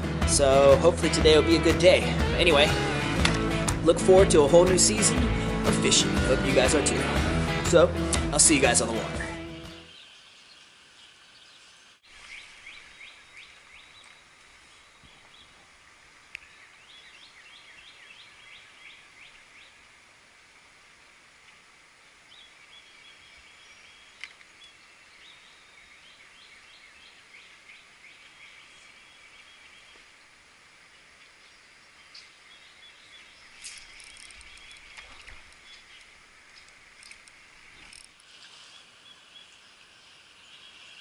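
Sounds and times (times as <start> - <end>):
steady low hiss: 0.0 - 41.0
sharp clicks: 3.2 - 3.5, 33.6 - 38.2
songbirds trilling: 8.7 - 15.7, 16.3 - 19.8, 22.2 - 41.0.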